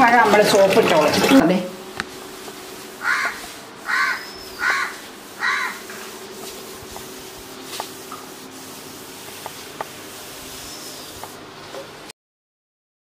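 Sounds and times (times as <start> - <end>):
crow cawing: 3.0 - 6.0.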